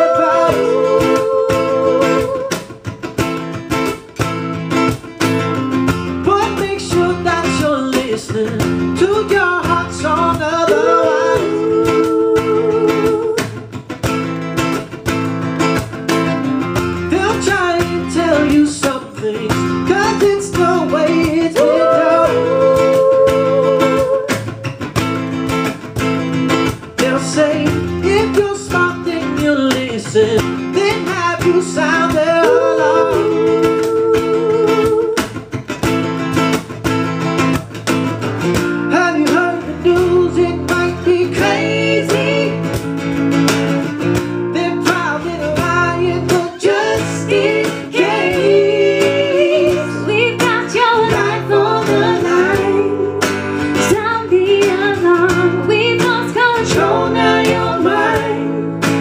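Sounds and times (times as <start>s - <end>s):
voices singing: 0.0s - 2.8s, 9.0s - 13.6s, 17.1s - 24.7s, 27.0s - 35.4s, 38.9s - 42.8s, 44.5s - 59.0s
acoustic guitars strummed: 0.0s - 59.0s.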